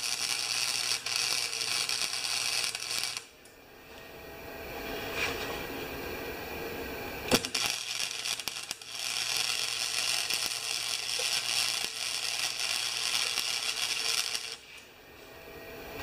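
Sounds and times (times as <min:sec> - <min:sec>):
welding arc crackling: 0:00.0 - 0:03.4, 0:07.3 - 0:14.8.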